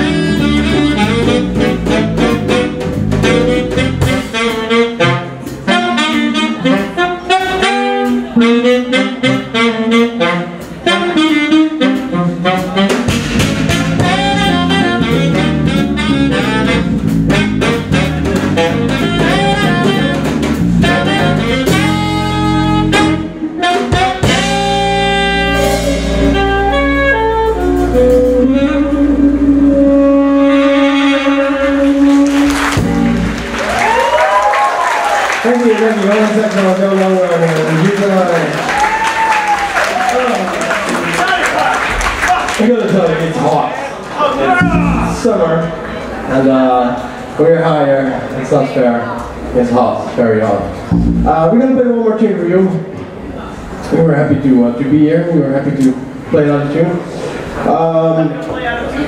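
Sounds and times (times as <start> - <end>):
guitar: 0.0 - 34.1, 44.3 - 46.2, 50.6 - 51.4
horns holding long notes: 0.0 - 38.9, 44.5 - 45.7
saxophone playing fast runs: 0.0 - 42.3
drum kit: 0.0 - 42.4, 44.5 - 45.7
bass: 0.0 - 59.0.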